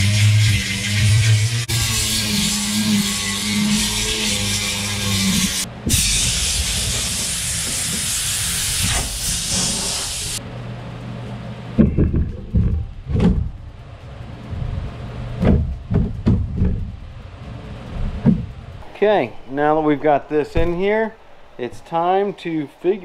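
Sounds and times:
air blast rushing hiss: 5.9 - 10.4
fibreglass knocks and bumps: 11.8 - 13.6, 15.4 - 17.0.

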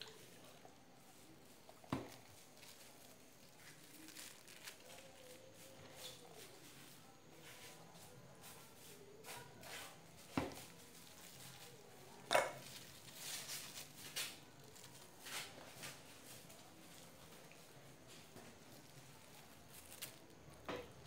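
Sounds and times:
plastic bag crinkling: 0.0 - 6.3, 10.5 - 21.0.

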